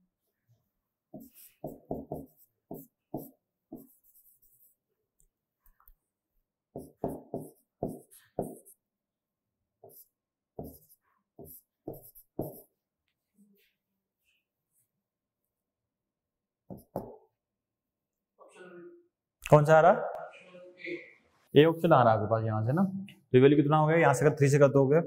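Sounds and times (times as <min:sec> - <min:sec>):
scratchy writing strokes: 0:01.1 - 0:04.9, 0:06.8 - 0:08.9, 0:09.8 - 0:13.8, 0:16.7 - 0:17.1.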